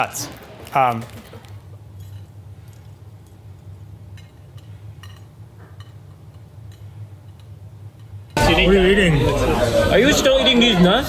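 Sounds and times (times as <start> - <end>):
room hum: 0.0 - 11.0
faint clicks and clinks: 1.1 - 8.4.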